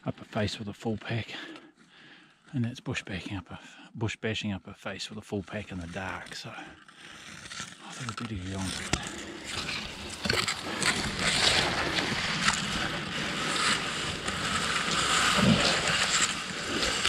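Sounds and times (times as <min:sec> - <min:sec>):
twigs cracking: 0:06.0 - 0:17.0
leaves and branches rustling: 0:07.8 - 0:17.0.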